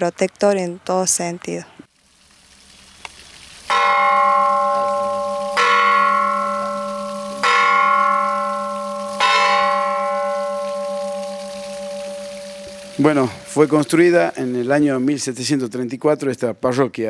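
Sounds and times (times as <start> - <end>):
church bell tolling: 3.7 - 14.7.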